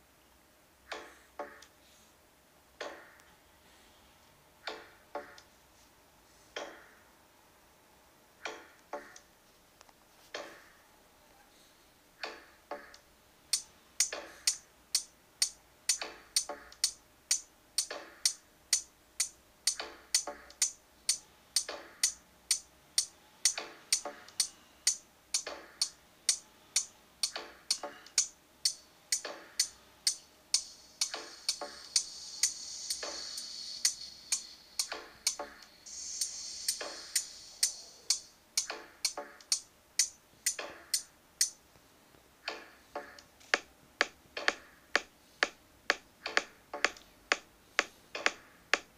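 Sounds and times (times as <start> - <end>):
drum machine ticking beat: 15.9 - 20.8, 21.6 - 22.6, 23.4 - 24.5, 27.2 - 41.0, 42.4 - 48.9.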